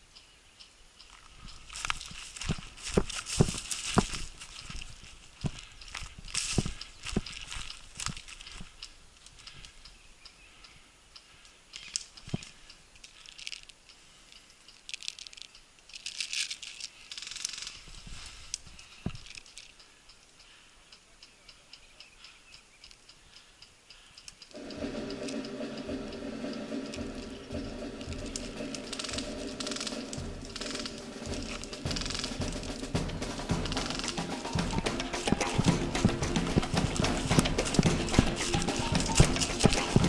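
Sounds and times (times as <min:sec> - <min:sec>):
footsteps crackling through dry brush: 0:01.1 - 0:09.4
background music: 0:24.5 - 0:40.0.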